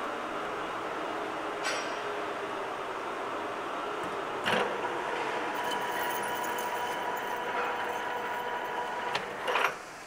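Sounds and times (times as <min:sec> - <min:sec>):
lathe gears whining: 0:04.5 - 0:09.8.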